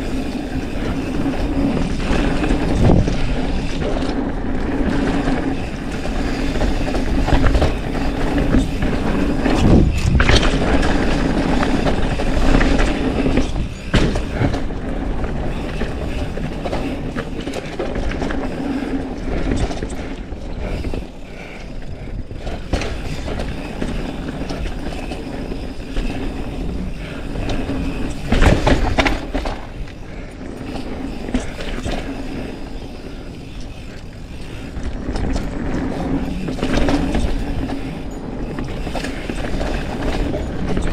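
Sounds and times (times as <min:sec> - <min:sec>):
bike jolts: 0:00.0 - 0:40.9
bike rattling: 0:00.0 - 0:40.9
bike tyres on dirt: 0:00.0 - 0:40.9
wind rushing: 0:05.5 - 0:14.9.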